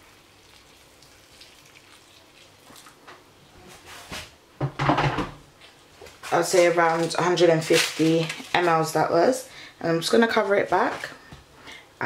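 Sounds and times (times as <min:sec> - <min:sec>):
water poured into a pan: 0:00.0 - 0:03.0.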